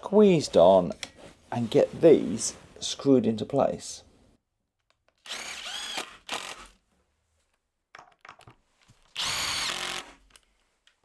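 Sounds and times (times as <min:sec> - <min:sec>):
cordless driver motor whine: 0:05.3 - 0:06.6, 0:09.2 - 0:10.1.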